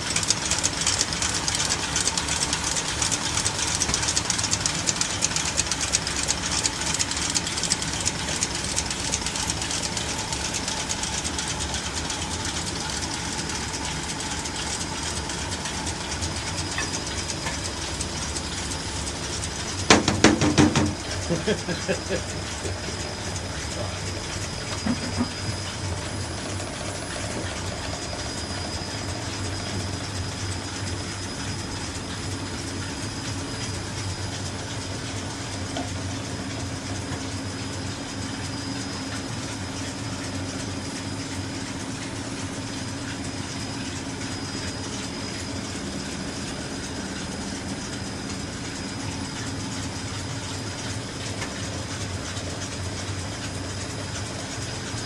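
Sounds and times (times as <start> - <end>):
conveyor rattling and clicking: 0.0 - 55.0
motor hum: 0.0 - 55.0
sharp knocks: 19.9 - 21.0.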